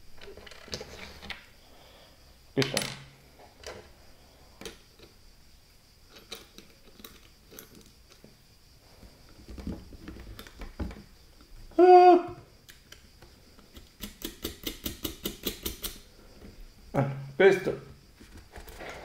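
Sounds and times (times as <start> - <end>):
small metal parts clicking: 6.1 - 8.3, 13.6 - 16.0.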